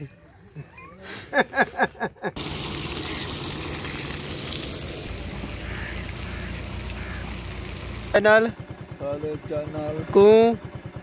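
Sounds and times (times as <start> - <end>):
faint low engine hum: 2.4 - 11.0.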